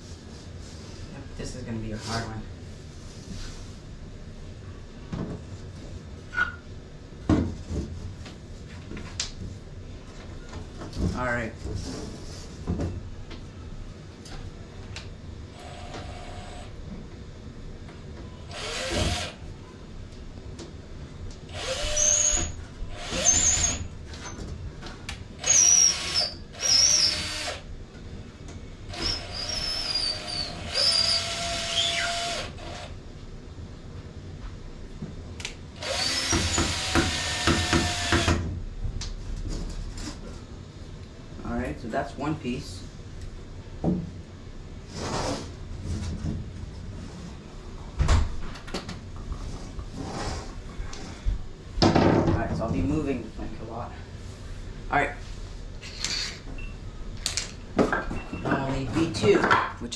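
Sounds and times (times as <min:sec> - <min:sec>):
cordless drill driving screws: 0:18.5 - 0:19.4, 0:21.5 - 0:23.8, 0:25.4 - 0:27.6, 0:28.9 - 0:32.9, 0:35.8 - 0:38.4, 0:55.9 - 0:56.4.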